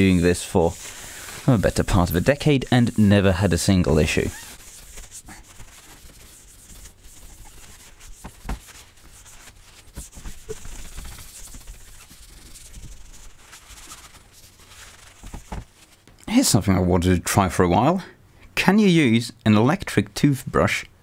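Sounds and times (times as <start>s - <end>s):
cloth wiping a screen: 0.0s - 16.1s.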